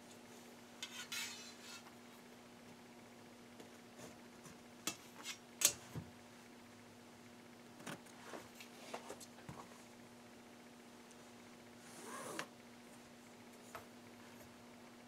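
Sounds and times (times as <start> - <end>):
pencil scraping along ruler: 0.8 - 1.9.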